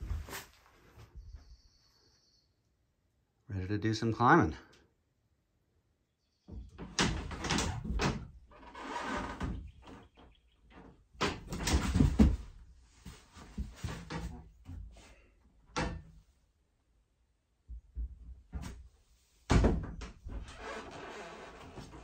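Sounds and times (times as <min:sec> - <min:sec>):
climber thumping on climbing holds: 0:11.2 - 0:12.6.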